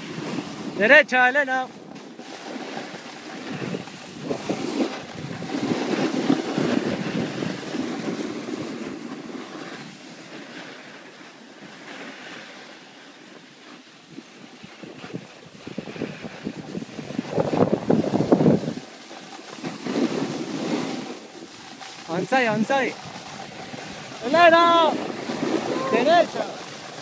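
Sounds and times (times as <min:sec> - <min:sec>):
skis scraping over snow: 0:00.0 - 0:27.0
wind on microphone: 0:01.8 - 0:10.5, 0:14.1 - 0:19.0, 0:19.6 - 0:27.0.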